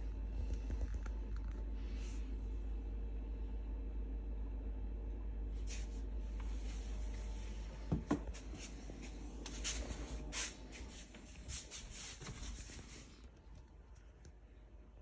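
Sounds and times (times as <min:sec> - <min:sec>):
low steady hum: 0:00.0 - 0:15.0
rustling and handling noise: 0:05.6 - 0:14.6.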